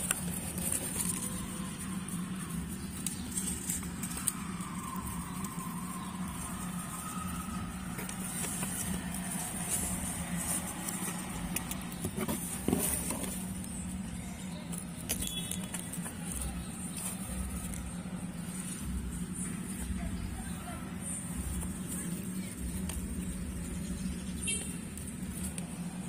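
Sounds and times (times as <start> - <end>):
grass and paper bedding rustling: 0.0 - 26.0
steady background hum: 0.0 - 26.0.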